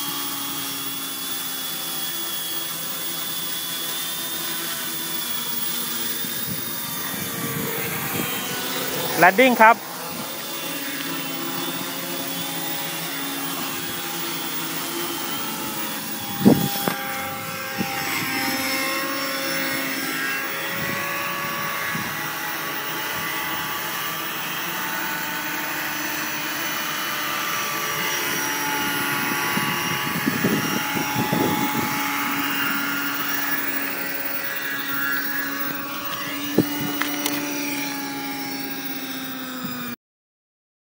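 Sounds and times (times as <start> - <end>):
drone motors whirring: 0.0 - 40.0.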